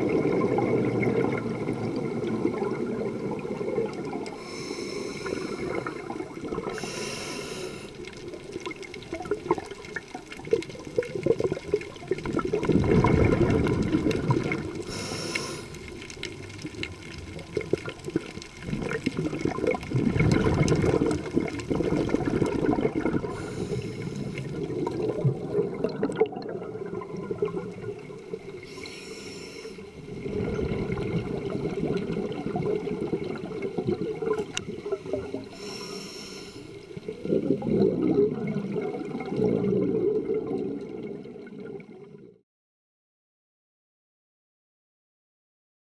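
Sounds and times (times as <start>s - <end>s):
exhaled bubbles rushing: 0.0s - 7.0s, 7.7s - 28.8s, 29.9s - 35.8s, 36.8s - 42.4s
regulator inhale hiss: 4.3s - 8.1s, 14.8s - 16.4s, 23.3s - 24.6s, 28.6s - 30.0s, 35.4s - 36.9s.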